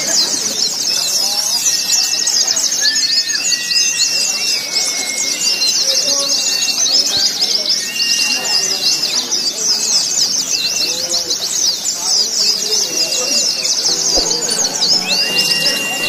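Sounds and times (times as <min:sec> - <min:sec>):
murmur of crowd voices: 0:00.0 - 0:16.0
long whistled notes: 0:01.7 - 0:09.2, 0:13.6 - 0:16.0.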